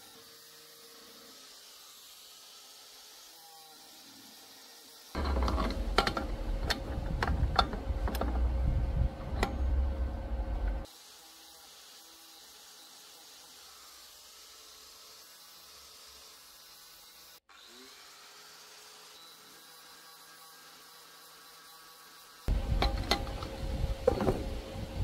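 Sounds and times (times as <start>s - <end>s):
metal tools knocking and clicking: 5.2s - 8.5s, 22.8s - 23.5s.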